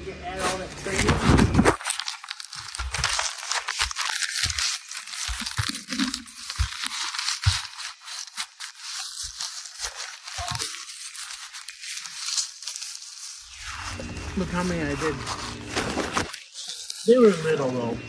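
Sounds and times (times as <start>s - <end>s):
small scrapes: 0.3s - 18.0s.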